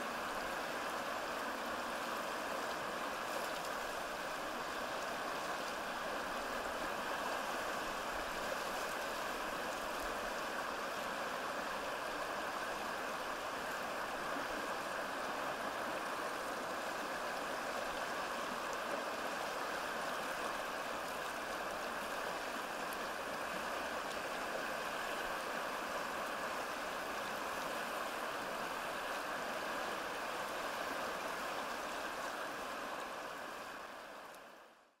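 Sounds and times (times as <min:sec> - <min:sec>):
stream water rushing: 0:00.0 - 0:34.8.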